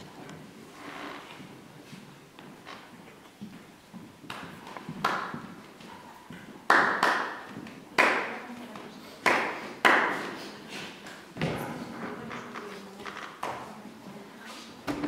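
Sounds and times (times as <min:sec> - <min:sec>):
hand claps echoing in a room: 0:04.2 - 0:11.6, 0:13.4 - 0:13.8.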